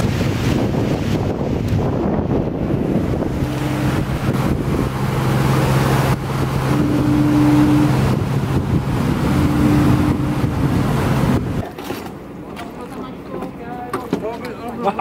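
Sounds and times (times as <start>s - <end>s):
wind buffeting microphone: 0.0s - 11.6s
boat engine droning: 0.0s - 15.0s.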